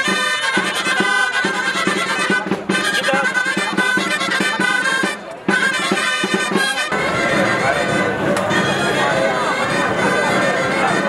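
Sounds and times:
low drum beats: 0.0s - 11.0s
shawms playing a reedy melody: 0.0s - 11.0s.

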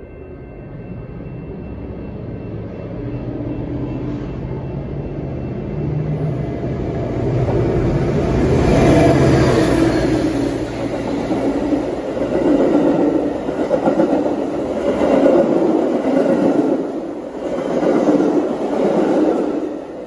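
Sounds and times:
train wheels clattering on rails: 8.6s - 20.0s.

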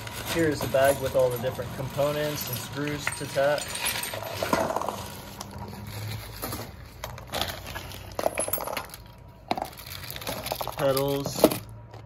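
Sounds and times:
plastic bag rustling: 0.0s - 11.7s
screws clinking: 0.2s - 5.2s.

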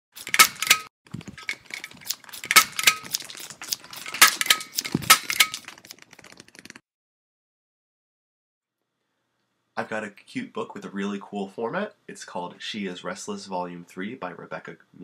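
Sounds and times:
small hard objects clinking: 1.1s - 6.8s.

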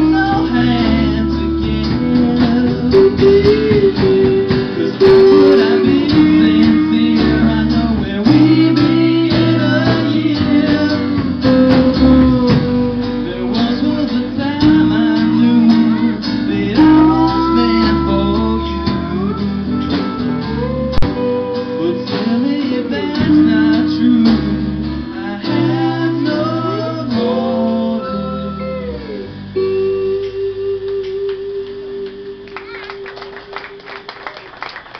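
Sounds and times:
drum kit: 0.0s - 27.9s
man singing: 0.0s - 32.8s
strummed acoustic guitar: 0.0s - 33.9s
bass guitar: 0.0s - 34.9s
electric guitar: 0.0s - 34.9s.

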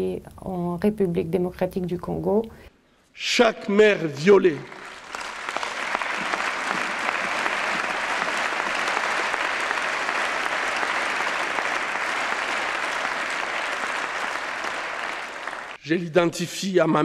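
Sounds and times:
audience applauding: 4.2s - 15.8s.

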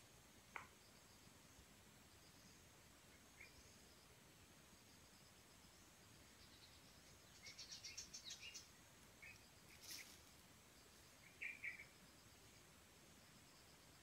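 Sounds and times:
faint hiss: 0.0s - 14.0s
bird chirping: 2.2s - 4.0s, 5.7s - 12.4s.

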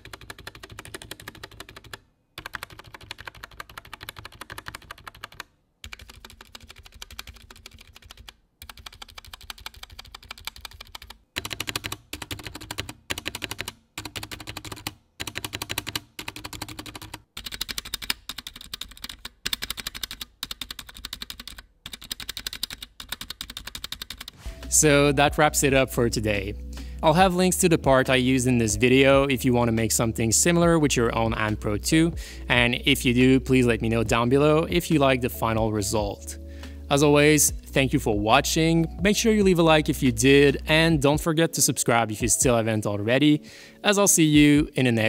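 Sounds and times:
mechanical keyboard typing: 0.0s - 24.4s.

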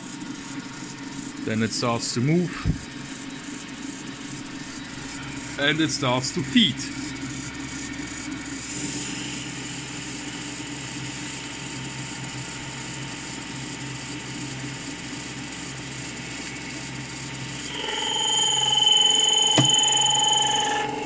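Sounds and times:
lathe humming: 16.1s - 21.0s
high whine: 17.6s - 21.0s.

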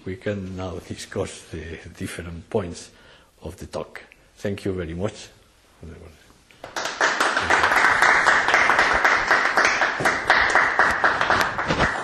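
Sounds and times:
audience clapping: 6.6s - 12.0s.

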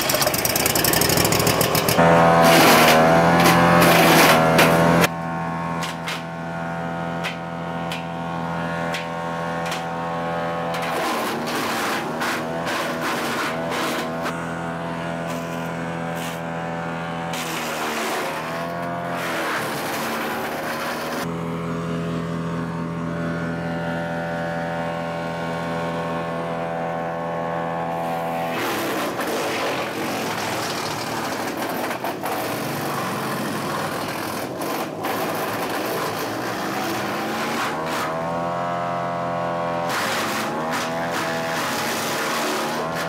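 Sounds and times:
knives grinding wood: 0.0s - 5.1s, 5.8s - 6.3s, 7.2s - 10.0s, 10.6s - 14.6s, 15.2s - 16.5s, 17.3s - 21.3s, 27.9s - 38.7s, 39.8s - 43.0s
wood chipper engine running: 0.0s - 43.0s.

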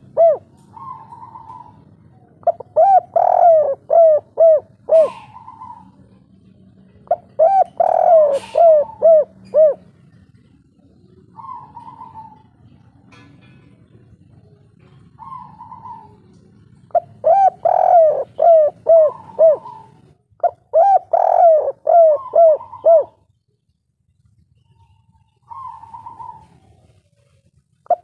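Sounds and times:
dove cooing: 0.0s - 13.1s, 13.8s - 23.3s, 24.6s - 28.0s.

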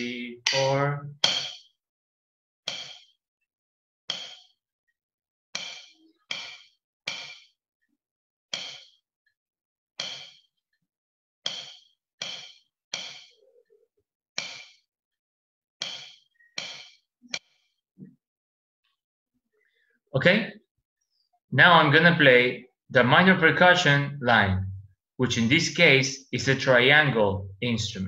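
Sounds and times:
drumstick strokes on practice pad: 0.5s - 1.8s, 2.7s - 3.2s, 4.1s - 4.6s, 5.6s - 7.6s, 8.5s - 9.0s, 10.0s - 10.5s, 11.5s - 13.6s, 14.4s - 14.9s, 15.8s - 17.4s.

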